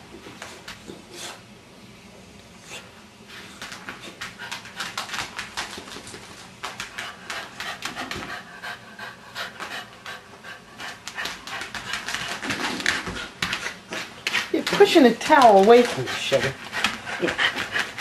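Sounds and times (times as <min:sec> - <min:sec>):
dog panting: 0:06.8 - 0:18.0.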